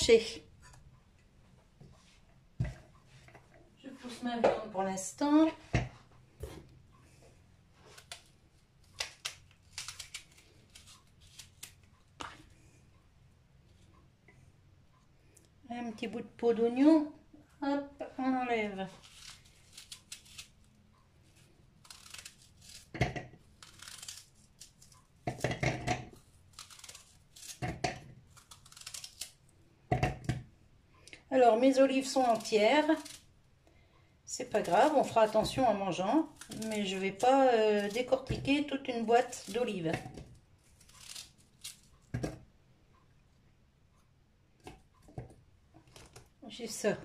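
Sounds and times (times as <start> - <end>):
knife slicing onion: 34.4 - 40.2.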